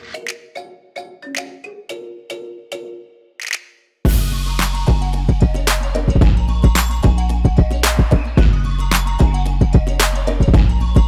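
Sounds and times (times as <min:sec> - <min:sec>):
bright drum hit: 0:04.1 - 0:04.7
music with drum beat and bass: 0:04.1 - 0:11.0.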